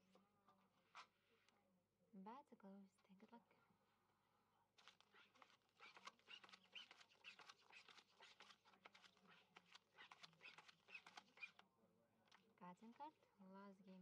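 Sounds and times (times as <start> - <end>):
playing cards sliding on felt: 4.8 - 11.6.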